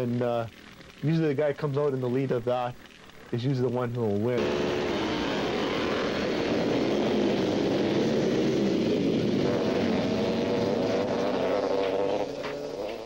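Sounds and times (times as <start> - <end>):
motorcycle engines revving high: 4.4 - 13.0.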